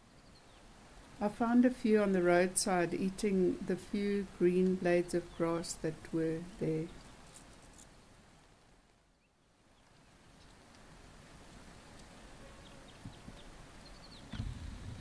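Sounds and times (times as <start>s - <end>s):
low thump: 14.3s - 15.0s.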